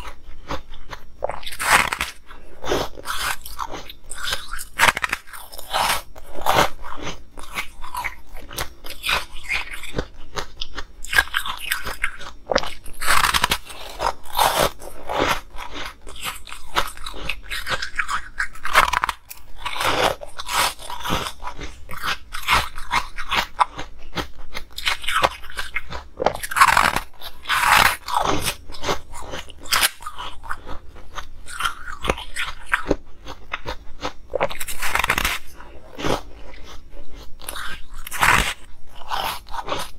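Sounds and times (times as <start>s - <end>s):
crunching hard ice: 24.8s - 30.6s.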